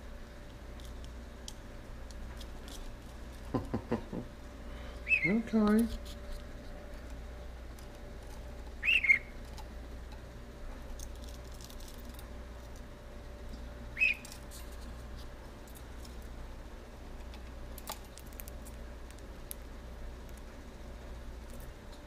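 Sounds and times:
budgerigar chirping: 0:05.0 - 0:05.4, 0:08.8 - 0:09.3, 0:14.0 - 0:14.2.

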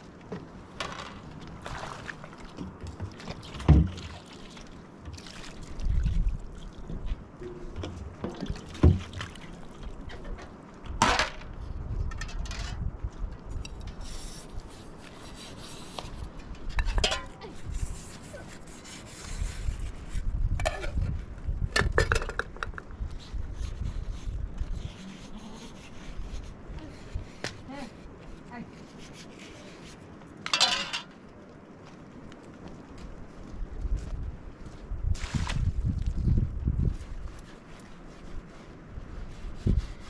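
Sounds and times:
metal pots and pans clinking: 0:16.8 - 0:17.4, 0:30.5 - 0:31.1.

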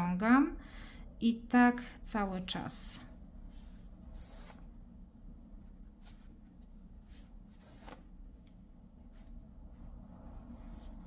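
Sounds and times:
low room hum: 0:00.0 - 0:11.0
rustles of yarn and crochet: 0:02.1 - 0:04.8, 0:05.9 - 0:11.0.

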